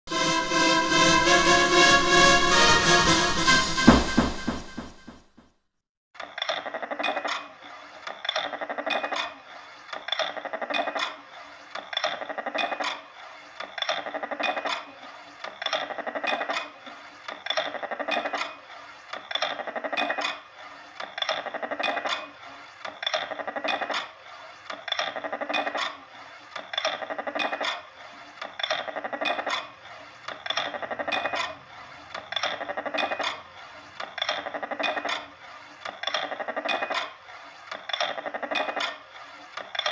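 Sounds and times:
metallic scraping and clicking: 17.3 - 39.9.

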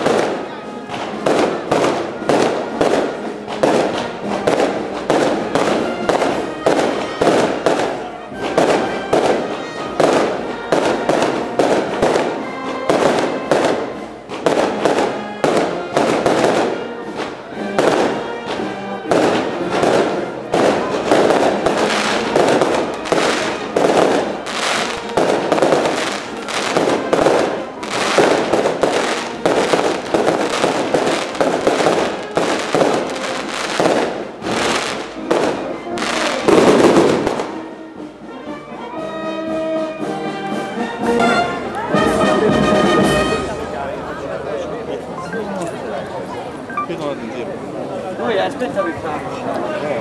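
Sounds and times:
fireworks bangs and crackles: 0.0 - 38.1.

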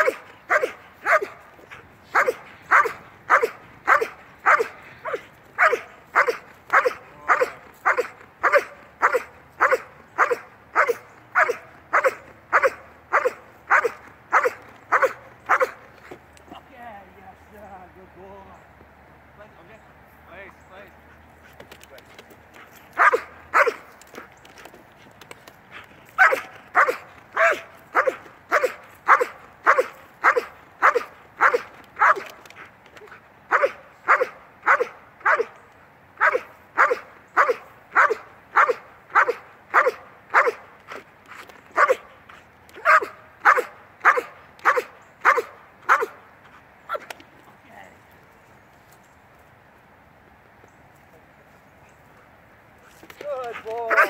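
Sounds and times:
dog barking loudly: 0.0 - 16.2, 23.0 - 24.3, 26.2 - 32.4, 33.0 - 35.6, 36.2 - 41.1, 41.7 - 46.2, 46.9 - 47.1, 53.5 - 54.0.

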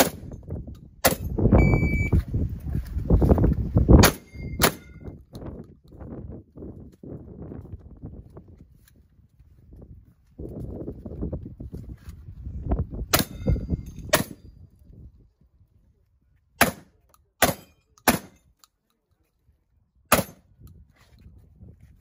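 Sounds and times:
pistol shots: 0.0 - 0.4, 1.0 - 1.3, 4.0 - 5.0, 14.1 - 14.4, 16.6 - 18.4, 20.1 - 20.4
wind rumbling on microphone: 0.0 - 16.8, 19.5 - 22.0.

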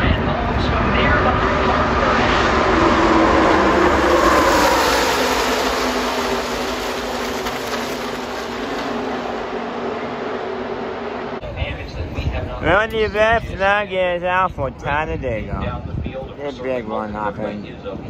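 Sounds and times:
race trucks passing at speed: 0.2 - 11.4.

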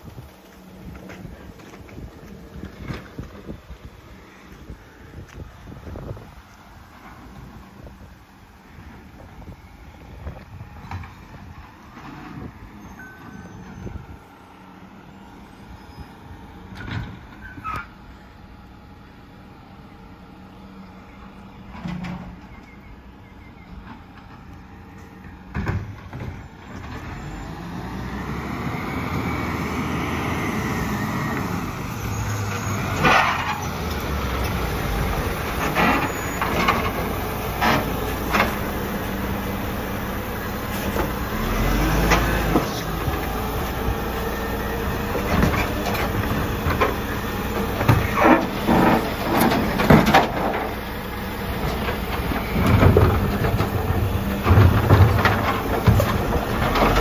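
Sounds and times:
garbage truck engine: 0.0 - 57.0
brakes squealing and hissing: 17.3 - 18.2, 26.3 - 57.0
clanks and knocks: 47.6 - 50.8, 51.6 - 57.0.

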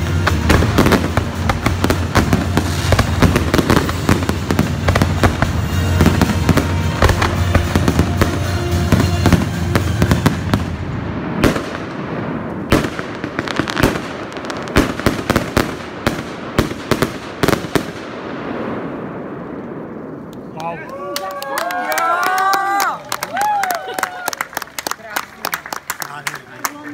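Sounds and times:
fireworks bangs and crackling: 0.0 - 20.9.

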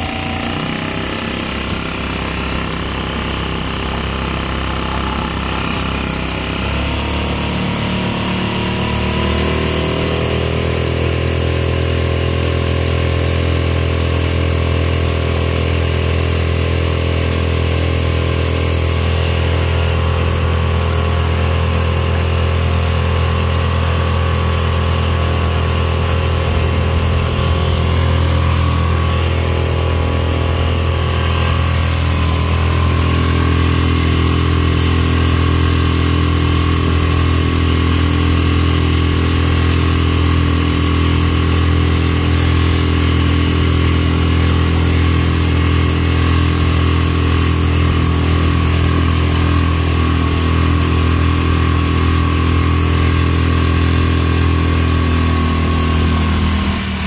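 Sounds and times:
outboard motor running: 0.0 - 57.0.

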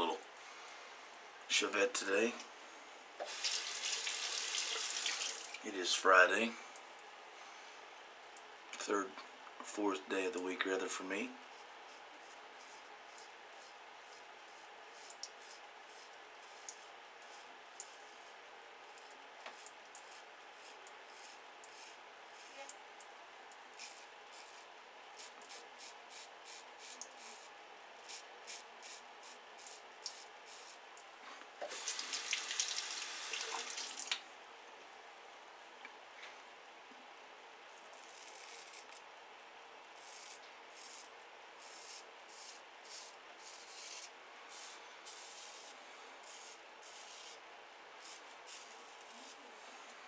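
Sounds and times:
tap water running: 3.2 - 5.6, 31.6 - 34.2
razor scraping stubble: 19.5 - 22.7, 23.8 - 30.8, 37.8 - 39.0, 40.0 - 47.4, 48.0 - 49.4.

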